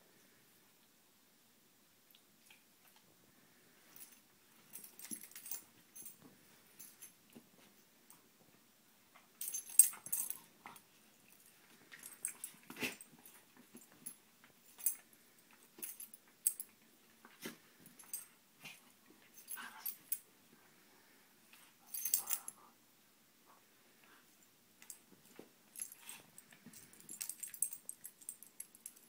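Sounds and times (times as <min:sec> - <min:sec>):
metal collar tags jingling: 0:04.0 - 0:06.2, 0:09.4 - 0:15.0, 0:15.7 - 0:16.7, 0:21.8 - 0:22.6, 0:25.7 - 0:29.0
dogs playing noises: 0:09.1 - 0:20.2, 0:21.5 - 0:22.8.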